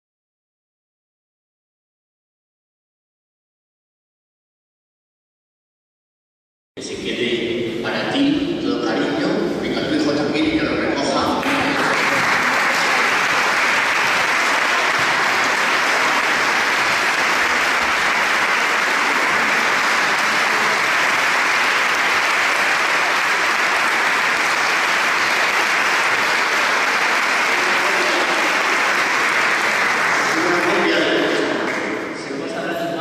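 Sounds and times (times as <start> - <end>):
audience applauding: 11.4 - 32.2.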